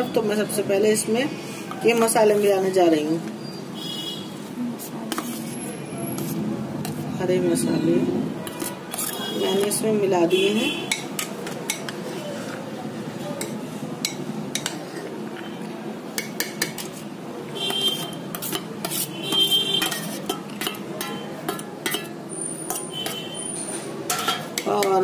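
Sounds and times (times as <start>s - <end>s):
spoon stirring and scraping bowl: 4.8s - 7.1s, 8.4s - 9.9s, 10.9s - 25.0s.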